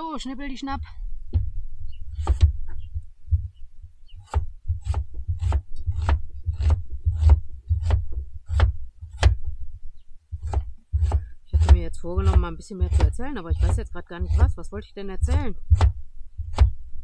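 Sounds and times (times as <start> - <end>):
knife chopping on cutting board: 10.4 - 13.8.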